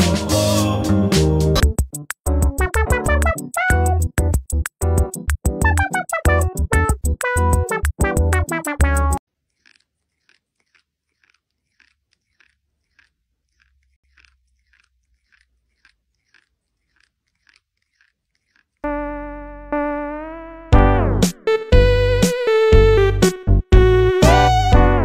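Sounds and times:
faint regular crunching: 9.2s - 18.9s.

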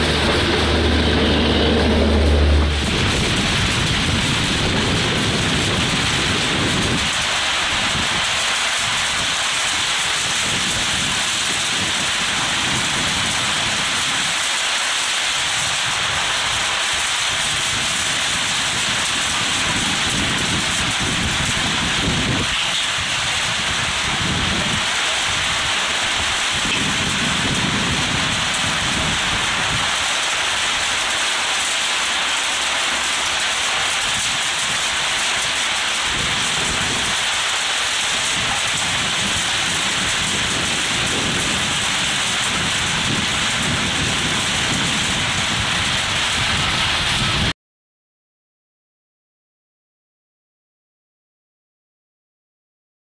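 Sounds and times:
low rumble: 0.0s - 6.2s
heavy rain hiss: 0.0s - 47.5s.

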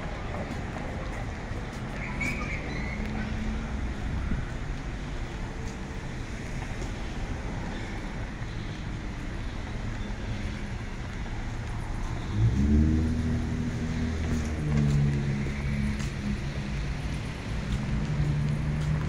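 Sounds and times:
rumble of passing cars: 0.0s - 19.0s
nearby car engine: 11.6s - 19.0s.

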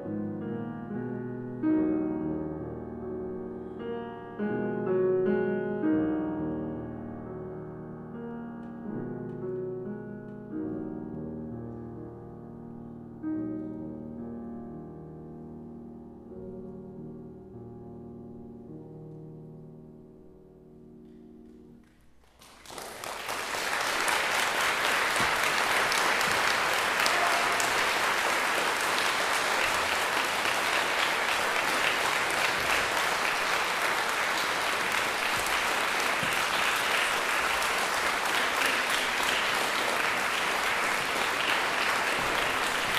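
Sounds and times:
audience applause: 22.3s - 42.9s.

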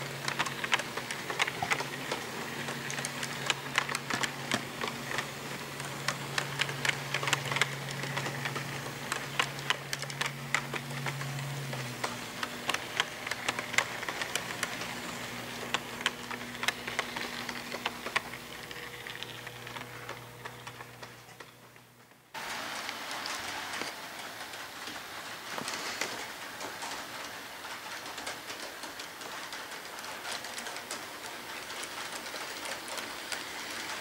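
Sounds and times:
steady low hum: 0.0s - 22.4s
model train wheels clicking: 0.0s - 34.0s.

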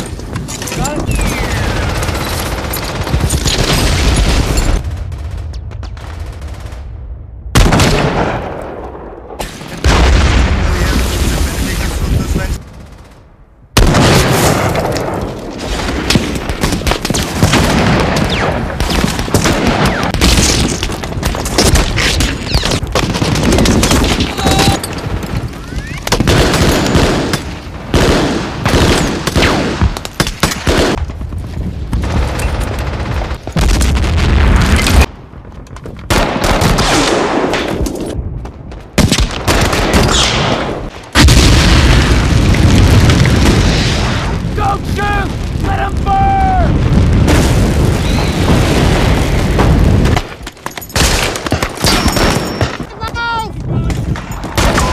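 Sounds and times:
rifle and machine-gun fire: 0.0s - 11.1s, 12.3s - 35.1s, 36.0s - 44.6s, 46.7s - 53.1s, 54.0s - 54.9s
heavy explosions: 1.1s - 30.0s, 30.6s - 50.4s
shouting voices: 44.6s - 46.8s.

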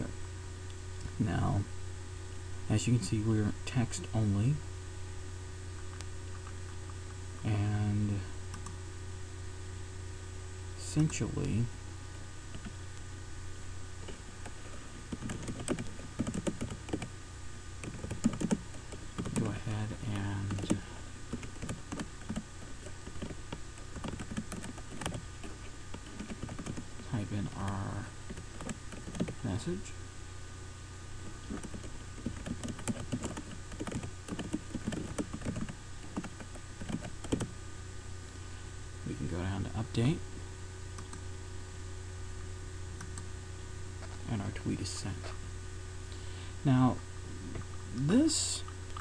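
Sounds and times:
steady low hum: 0.0s - 49.0s
typing on computer keyboard: 15.1s - 17.1s, 17.8s - 19.5s, 20.4s - 25.2s, 26.0s - 26.8s, 28.3s - 29.4s, 31.5s - 37.5s.

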